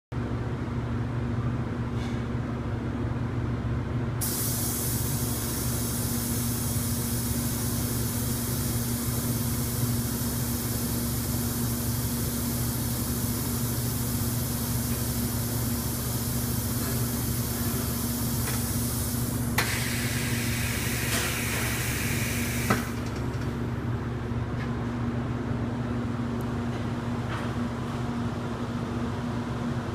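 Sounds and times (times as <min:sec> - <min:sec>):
compressed air hissing: 0:04.2 - 0:23.2.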